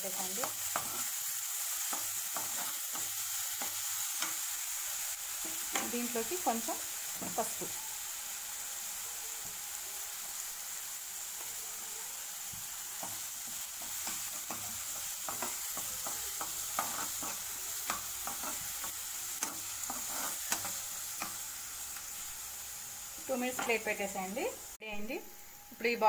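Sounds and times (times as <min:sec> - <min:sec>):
paste frying in oil: 0:00.0 - 0:26.0
spatula scraping a pan: 0:00.4 - 0:06.2, 0:12.5 - 0:22.2.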